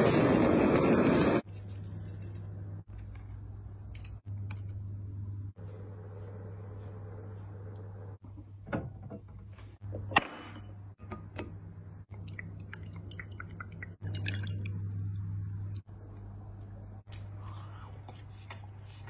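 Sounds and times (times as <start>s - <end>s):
drink pouring into glass: 12.2s - 14.9s.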